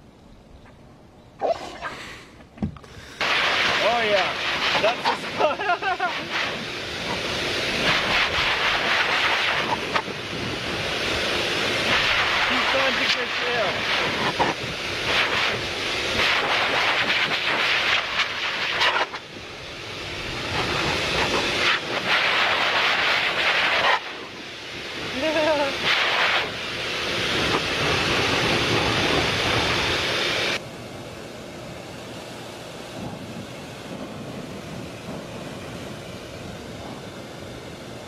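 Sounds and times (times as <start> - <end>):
garden hose spraying onto grass: 2.8 - 30.6
vacuum cleaner brushing dog's coat: 3.2 - 19.2, 20.2 - 24.3, 25.1 - 30.6.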